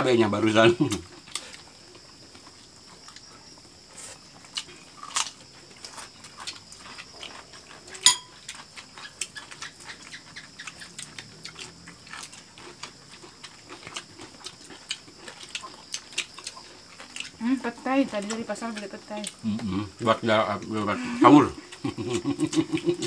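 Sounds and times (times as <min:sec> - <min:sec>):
people chewing and smacking: 0:00.5 - 0:23.0
dish clinking: 0:08.0 - 0:08.3.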